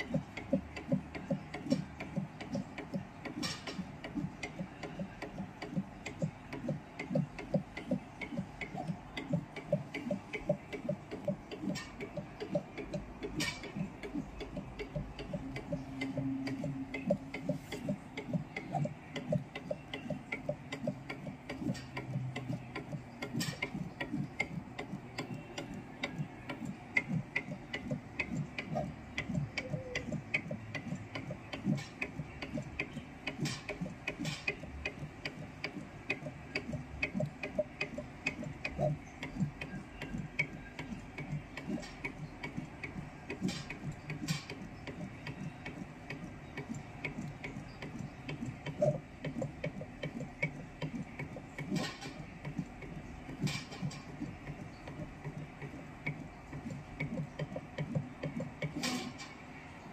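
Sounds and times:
soldering machine ticking: 0.0s - 59.9s
sharp machine click: 11.5s - 17.8s, 58.6s - 59.4s.

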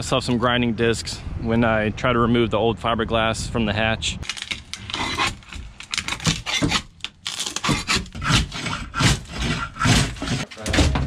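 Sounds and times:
scraper scraping fiberglass: 4.7s - 11.0s.

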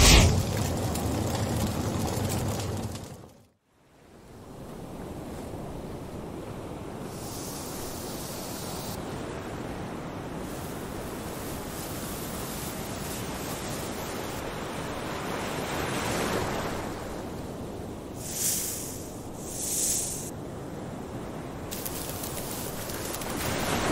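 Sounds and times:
wind: 0.0s - 23.9s
sea surf: 9.0s - 20.4s, 21.4s - 23.9s.

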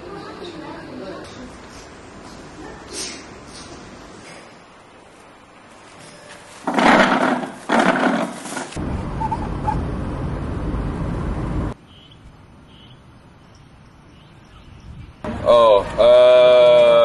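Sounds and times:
road noise inside moving car: 8.8s - 11.8s
birds chirping: 11.8s - 15.4s.

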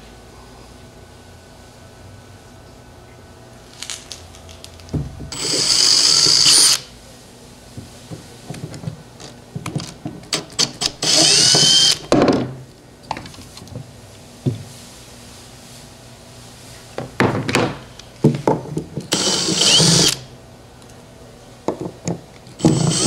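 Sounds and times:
cordless drill whining: 5.3s - 6.9s, 10.6s - 12.0s, 19.1s - 20.2s, 22.6s - 23.0s
handling clicks and knocks: 7.8s - 10.4s.

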